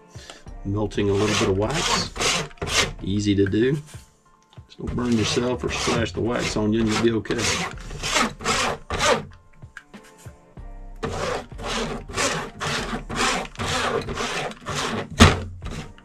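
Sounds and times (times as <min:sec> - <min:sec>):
paintbrush scrubbing: 0:01.0 - 0:02.9, 0:05.0 - 0:09.2, 0:11.0 - 0:16.0.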